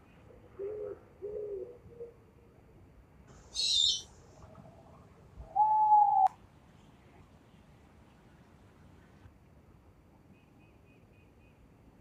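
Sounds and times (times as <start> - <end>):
high drawn-out owl call: 3.5 - 4.1, 5.5 - 6.3
owl hooting: 3.5 - 4.1, 5.5 - 6.3.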